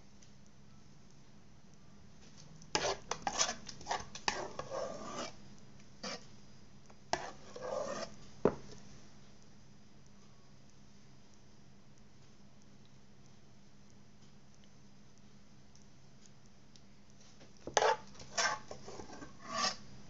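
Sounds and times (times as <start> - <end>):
spoon scraping glass jar: 2.8 - 5.4, 7.2 - 8.2, 17.7 - 19.8.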